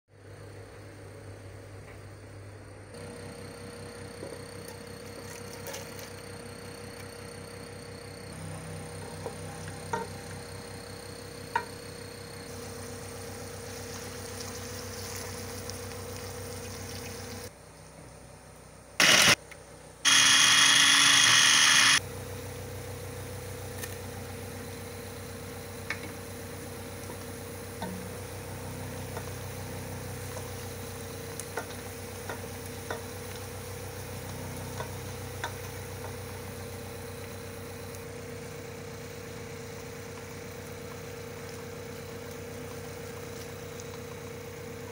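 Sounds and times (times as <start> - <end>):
onions sizzling in oil: 12.5 - 17.5, 25.2 - 44.9.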